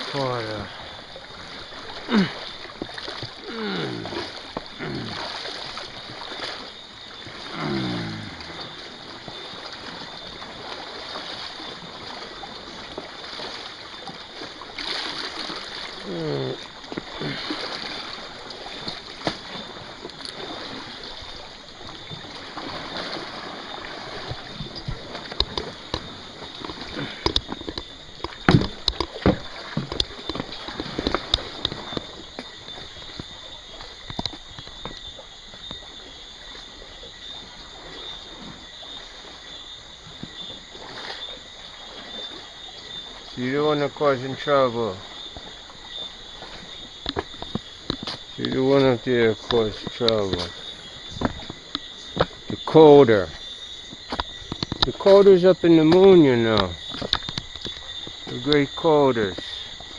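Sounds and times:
small waves lapping at shore: 0:00.0 - 0:59.9
sharp clicks and knocks: 0:54.1 - 0:55.0.

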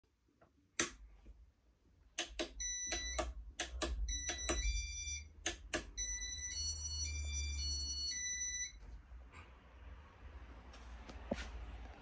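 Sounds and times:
sharp clicks: 0:05.4 - 0:06.0.

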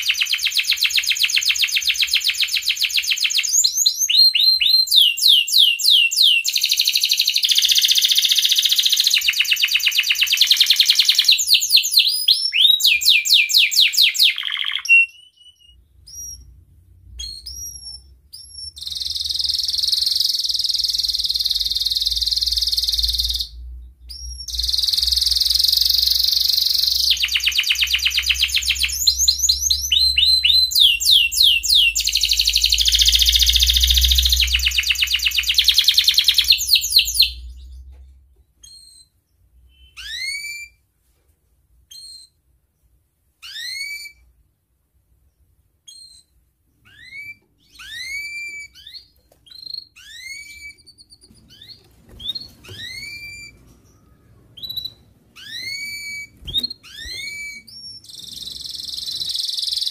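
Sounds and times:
canary singing: 0:00.0 - 0:40.8, 0:41.9 - 0:42.5, 0:43.4 - 0:44.3, 0:45.3 - 0:59.9
short bird chirps: 0:38.6 - 0:40.8.

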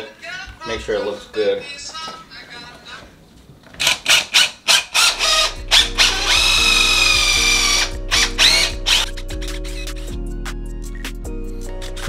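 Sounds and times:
power drill whining: 0:03.8 - 0:09.0
background music with low notes: 0:05.2 - 0:12.0.

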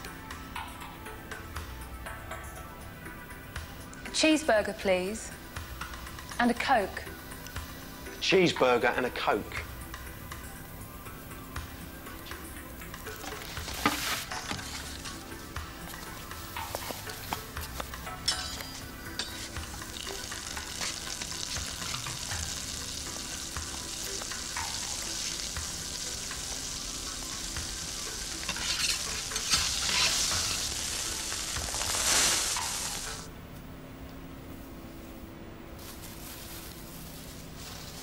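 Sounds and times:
patty sizzling on a griddle: 0:19.0 - 0:33.3.

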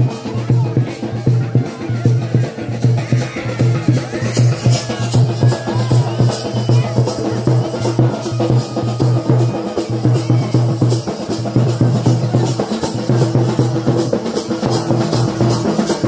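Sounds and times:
folk dance music: 0:00.0 - 0:16.0
steady drum beat: 0:00.0 - 0:16.0.

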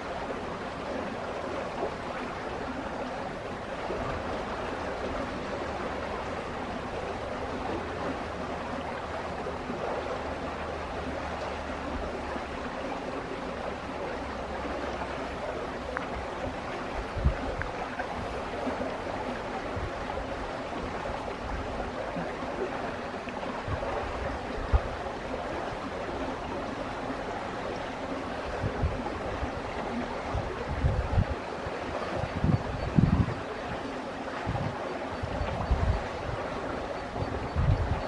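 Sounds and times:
running water rushing: 0:00.0 - 0:38.0
wind thumps on microphone: 0:16.4 - 0:18.8, 0:30.3 - 0:31.4, 0:32.2 - 0:33.4, 0:34.4 - 0:36.4, 0:37.2 - 0:38.0.

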